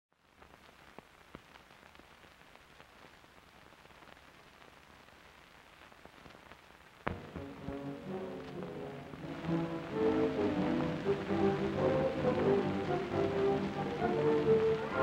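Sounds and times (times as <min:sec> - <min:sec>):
film soundtrack hiss: 0:00.1 - 0:15.0
clicks and crackles: 0:00.3 - 0:08.8.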